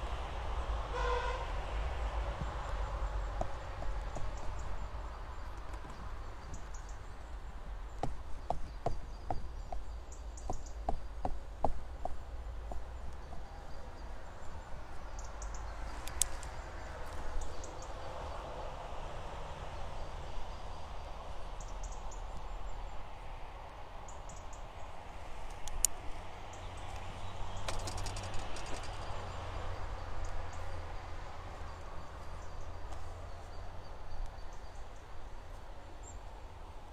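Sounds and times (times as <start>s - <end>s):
low wind rumble: 0.0s - 36.9s.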